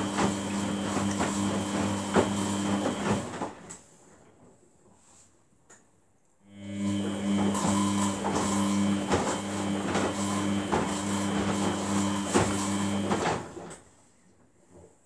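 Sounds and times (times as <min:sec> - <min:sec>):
water sloshing and thumping in drum: 0:00.0 - 0:03.6
washing machine motor hum: 0:00.0 - 0:03.7, 0:06.5 - 0:13.8.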